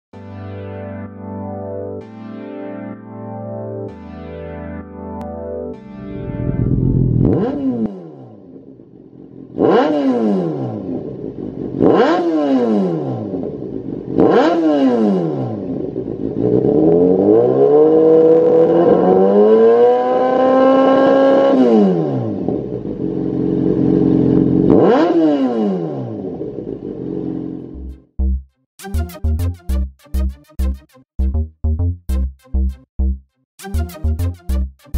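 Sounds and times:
motorcycle engine revving: 6.0s - 28.0s.

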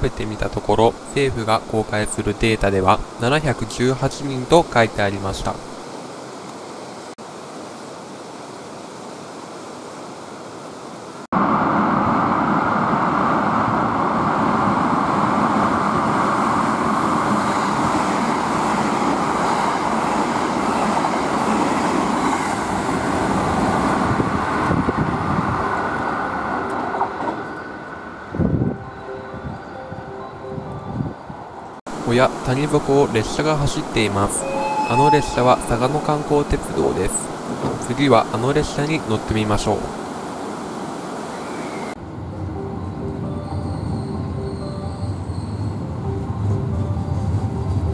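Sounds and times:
express train passing: 11.4s - 47.9s.

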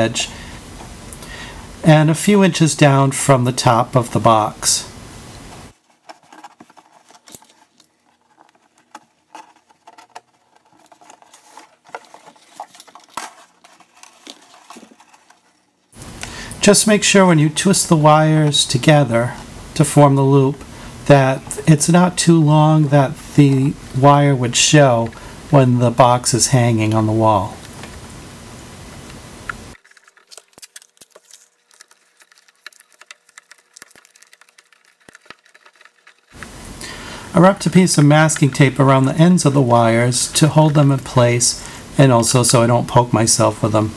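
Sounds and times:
faint steady hum: 0.0s - 43.9s
hands rustling a cardboard box: 5.5s - 16.1s, 29.7s - 36.7s
wire clicking through cardboard: 29.8s - 36.4s.

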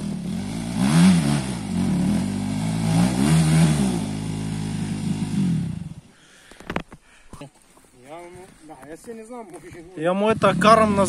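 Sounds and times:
dirt bike engine revving: 0.0s - 6.1s, 10.2s - 11.0s.

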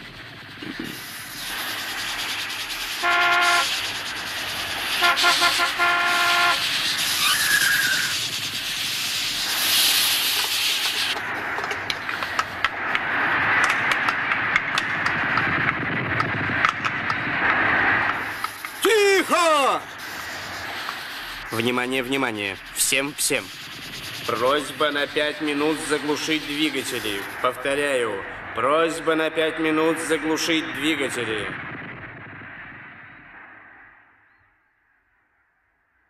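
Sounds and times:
jet engines rushing: 0.0s - 34.1s
horn blast: 2.9s - 3.9s, 4.9s - 6.8s.

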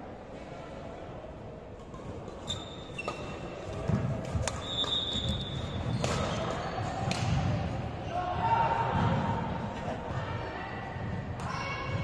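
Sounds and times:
shoes squeaking on court: 2.4s - 6.7s.

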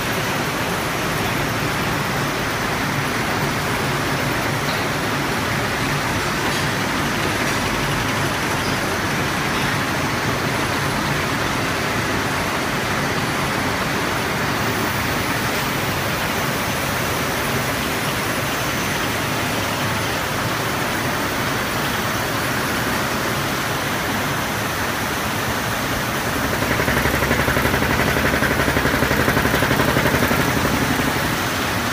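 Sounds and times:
paper rope machine running: 24.8s - 31.9s.

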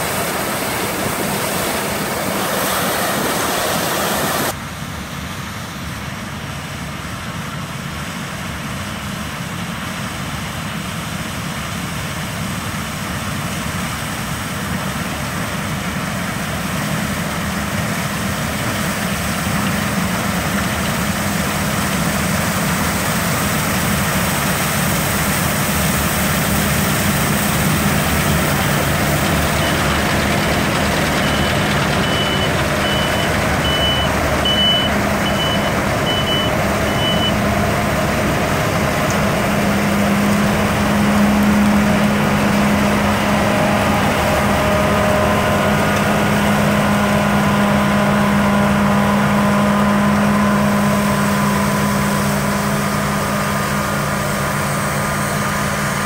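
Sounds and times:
combine harvester engine and threshing: 0.0s - 56.0s
short high beeps: 31.2s - 37.4s.

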